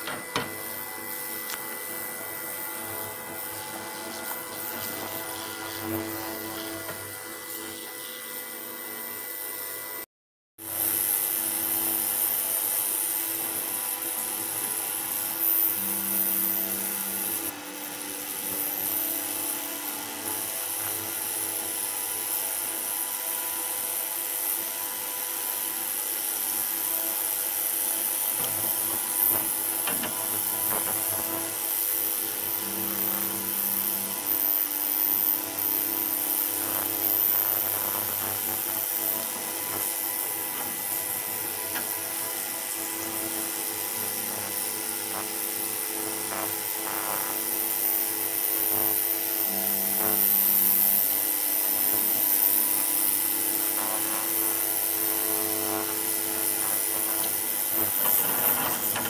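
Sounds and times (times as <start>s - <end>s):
ultrasonic cleaner hissing: 0.0s - 9.0s, 28.0s - 59.0s
constant buzz: 0.0s - 10.0s, 10.6s - 59.0s.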